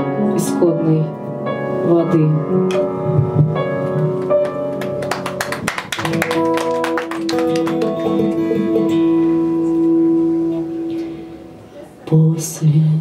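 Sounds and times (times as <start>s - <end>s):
piano chords: 0.0s - 12.1s
acoustic guitar strumming: 6.2s - 11.6s.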